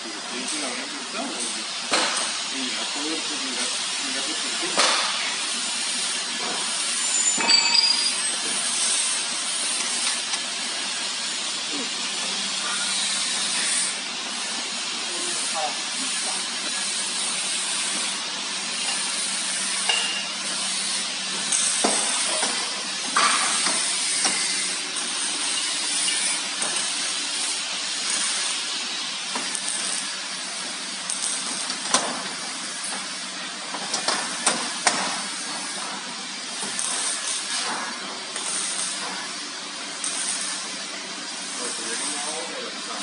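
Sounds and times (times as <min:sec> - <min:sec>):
steady hiss: 0:08.4 - 0:33.5.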